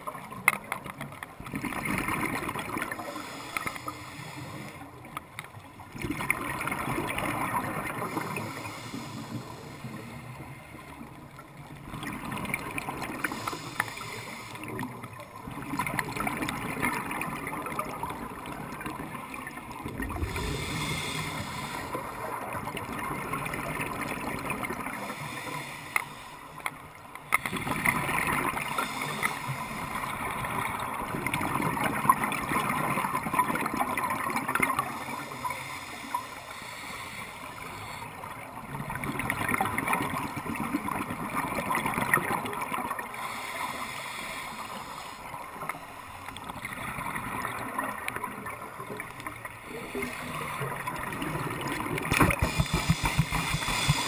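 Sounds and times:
exhaled bubbles bubbling: 0:01.4 - 0:03.2, 0:05.8 - 0:08.7, 0:14.6 - 0:25.1, 0:46.4 - 0:54.0
diver breathing through regulator: 0:02.9 - 0:05.0, 0:08.0 - 0:10.8, 0:13.2 - 0:15.0, 0:20.2 - 0:22.4, 0:24.9 - 0:26.6, 0:28.6 - 0:30.1, 0:34.9 - 0:38.3, 0:43.1 - 0:45.4, 0:52.0 - 0:54.0.

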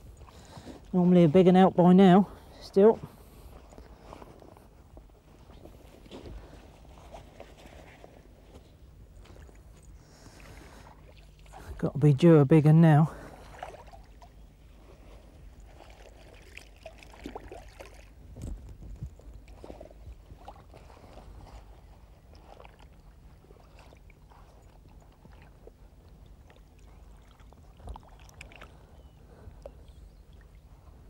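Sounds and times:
low steady hum: 0:00.0 - 0:31.0
shallow water splashing: 0:13.1 - 0:18.4, 0:19.4 - 0:30.8.

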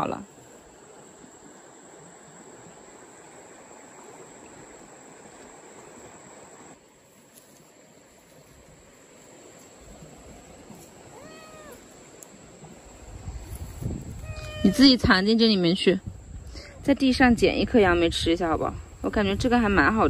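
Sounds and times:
insects droning: 0:00.0 - 0:20.0
soft hiss: 0:00.2 - 0:16.9
kitten meowing: 0:11.1 - 0:11.8, 0:14.2 - 0:15.0.

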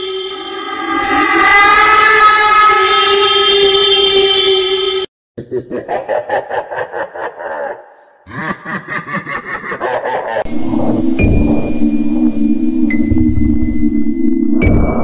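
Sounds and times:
person laughing: 0:05.4 - 0:10.5
background music: 0:10.5 - 0:15.0.

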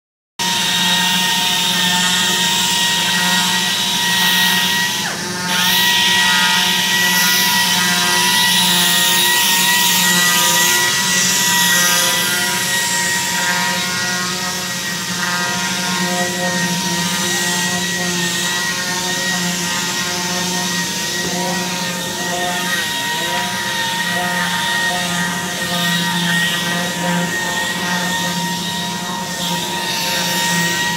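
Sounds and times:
orbital sanders whining: 0:00.4 - 0:30.9
workshop machinery running: 0:00.4 - 0:30.9.

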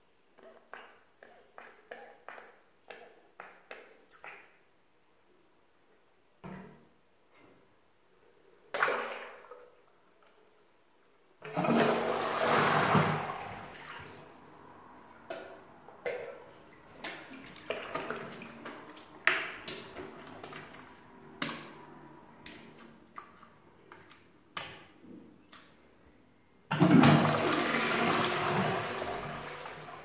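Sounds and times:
toilet flushing: 0:11.4 - 0:22.2, 0:26.7 - 0:30.0.

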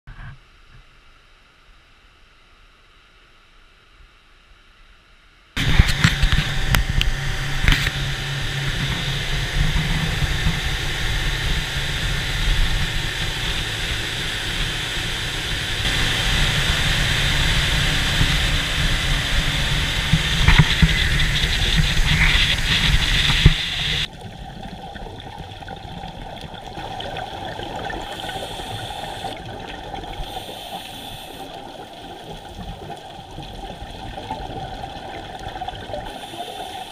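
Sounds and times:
motorboat engine: 0:05.6 - 0:24.2, 0:27.6 - 0:29.5
wind and water rushing: 0:05.6 - 0:36.3
underwater hiss and bubbling: 0:05.6 - 0:36.9.

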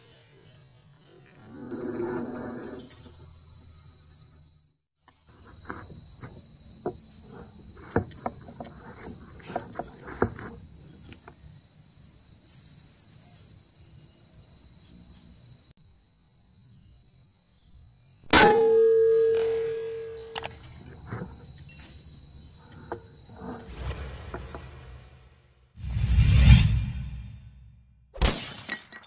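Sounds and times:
small clicks: 0:20.3 - 0:20.8.

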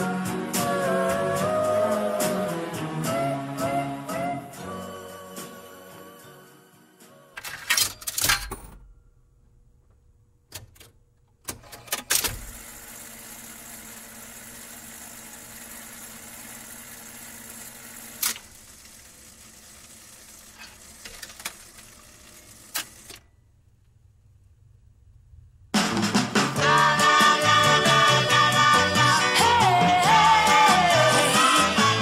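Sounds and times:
record changer clicks and clunks: 0:18.1 - 0:18.5, 0:20.6 - 0:22.0
faint hum: 0:23.1 - 0:25.8.

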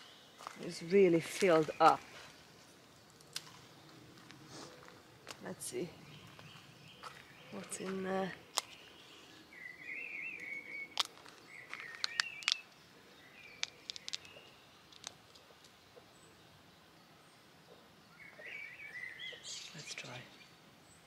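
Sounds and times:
pea pod snapping open: 0:03.2 - 0:03.6, 0:10.9 - 0:12.7, 0:13.5 - 0:15.4
songbird warbling: 0:03.6 - 0:14.8, 0:17.6 - 0:20.5.

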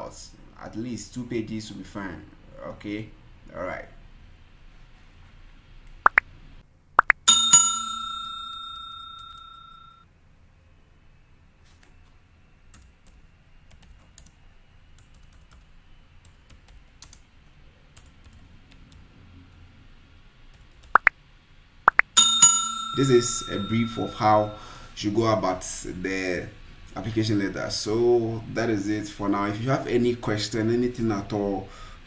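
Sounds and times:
bell chime: 0:07.3 - 0:10.0, 0:22.2 - 0:24.7
rising pop: 0:21.9 - 0:22.2.

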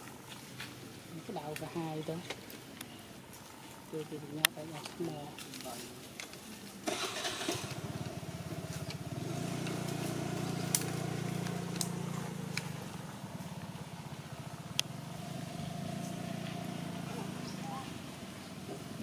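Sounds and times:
small engine running: 0:06.8 - 0:19.0.

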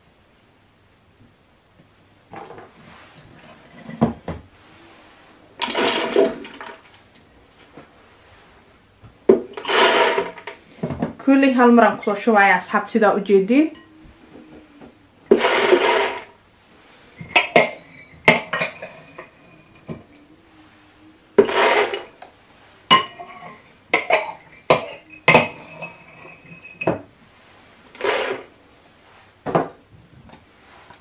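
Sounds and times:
chickpeas poured into blender jug: 0:05.6 - 0:06.8
spoon clinking and scraping glass: 0:17.2 - 0:20.2, 0:22.9 - 0:27.0.

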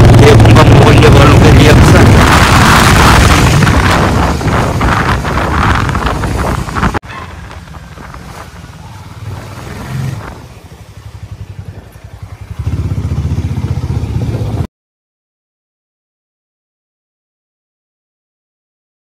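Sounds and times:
motorcycle engine running: 0:00.0 - 0:14.7.

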